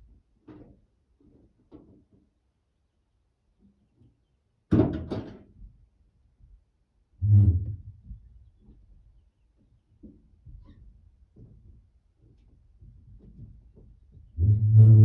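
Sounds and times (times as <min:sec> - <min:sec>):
clatter of knocks: 0:04.7 - 0:05.6, 0:10.0 - 0:14.4.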